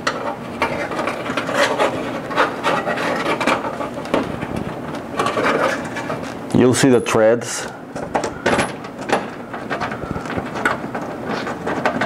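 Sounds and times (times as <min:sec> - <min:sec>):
metal tool scraping felt liner: 0:00.6 - 0:04.1, 0:05.1 - 0:06.4.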